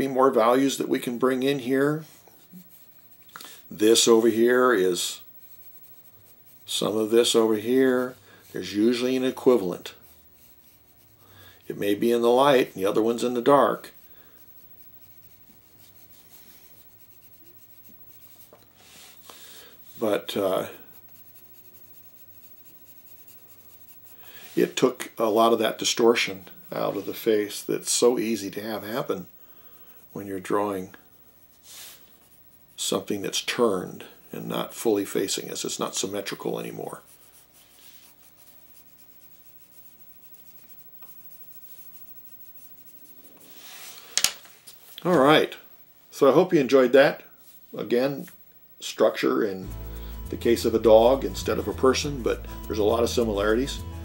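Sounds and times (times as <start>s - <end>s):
pencil shading on paper: 2.0s - 3.2s, 5.4s - 18.5s, 19.9s - 24.6s, 36.1s - 43.4s, 49.6s - 54.0s.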